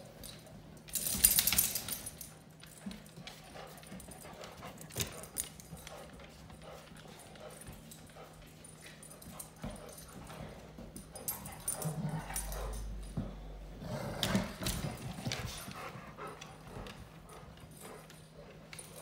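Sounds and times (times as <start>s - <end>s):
dogs scuffling on sofa: 0.0s - 19.0s.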